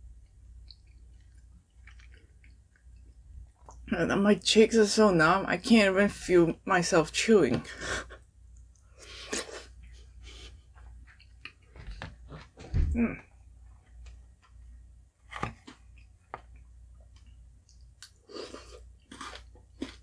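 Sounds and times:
chewing and mouth sounds: 0.1 - 3.9, 10.7 - 11.8, 15.6 - 20.0.

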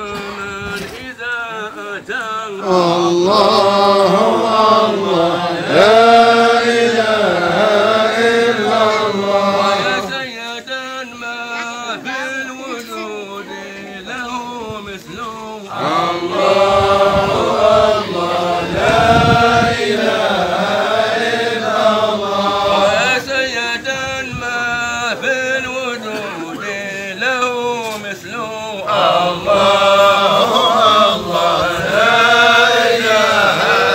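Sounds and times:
men chanting together: 1.5 - 33.9.

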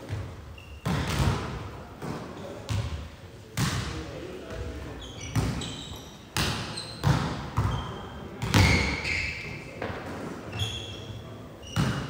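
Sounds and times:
volleyballs hitting and bouncing: 0.0 - 10.4, 11.6 - 12.0
sports shoes squeaking on floor: 0.4 - 1.2, 4.5 - 9.9, 10.5 - 12.0.

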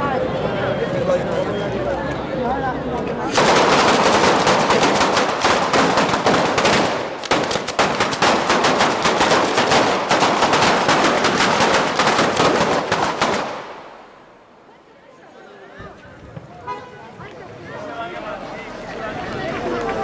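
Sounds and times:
string of firecrackers banging: 3.3 - 14.3.

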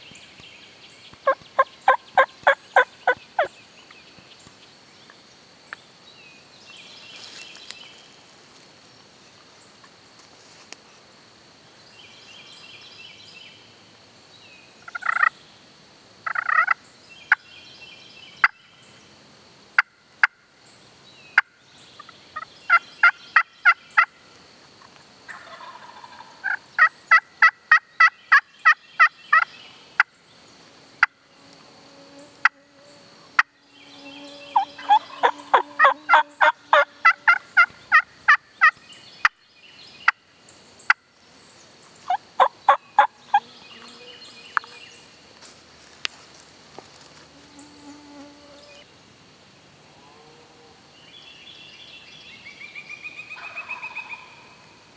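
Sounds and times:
faint songbirds chirping: 0.0 - 54.9
turkey gobbling: 1.6 - 3.5, 14.9 - 15.3, 16.2 - 16.8, 25.3 - 28.1, 34.6 - 38.7, 42.1 - 43.1, 53.4 - 54.4
rhythmic turkey yelps: 34.6 - 38.7.

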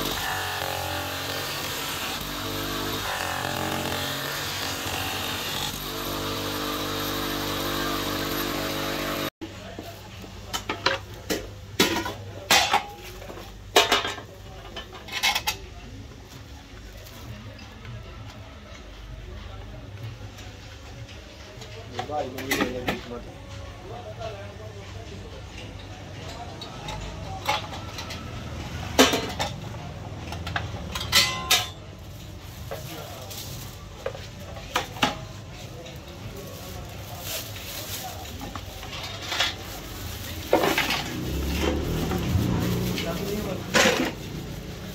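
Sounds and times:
metal bowls and lids clattering: 28.9 - 31.9, 38.5 - 44.8.

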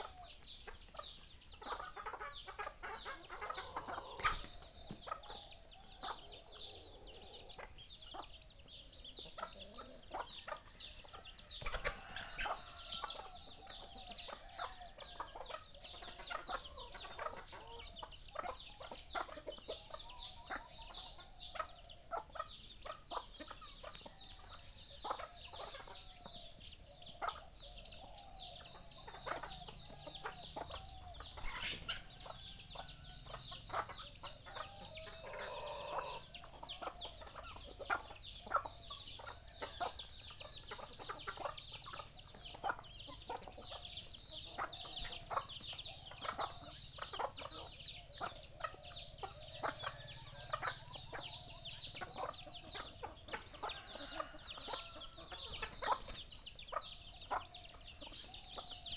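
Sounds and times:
low clucking calls: 0.0 - 8.4, 25.0 - 58.0.

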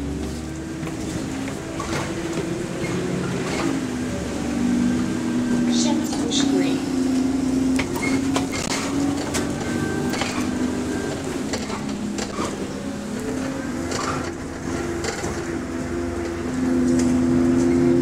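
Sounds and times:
engine cooling fan humming: 0.0 - 18.0
interior rattles: 7.8 - 17.2.

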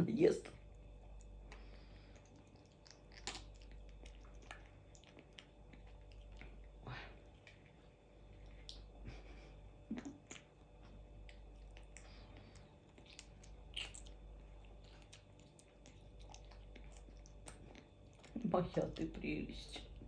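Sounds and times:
animal chewing wet mouth sounds: 0.6 - 9.0, 10.0 - 20.0
mouth smacks: 1.2 - 6.6, 8.5 - 18.4.

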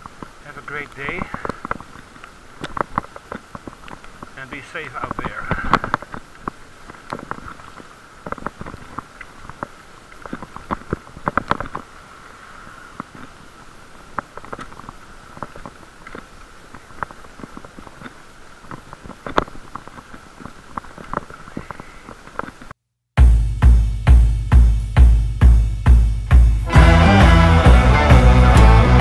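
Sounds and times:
bicycle clicks and knocks: 2.6 - 4.2.

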